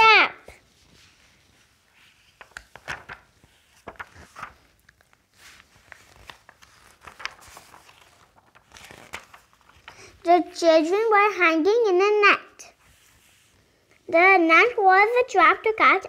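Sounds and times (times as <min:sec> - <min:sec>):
book pages rustling: 0:00.5 - 0:10.6, 0:12.7 - 0:14.0.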